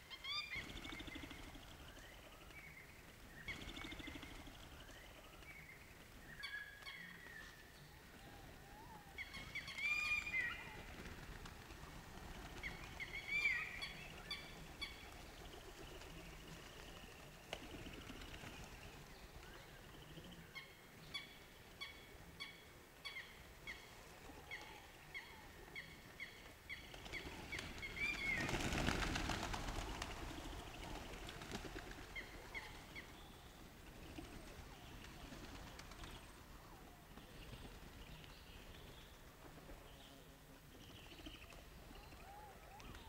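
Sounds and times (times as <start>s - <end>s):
pigeon wings flapping: 10.8s - 13.1s, 26.9s - 32.5s, 35.2s - 36.2s.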